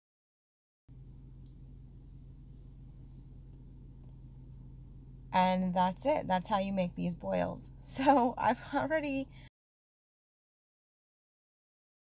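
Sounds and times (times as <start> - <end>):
woman speaking: 5.4 - 9.5.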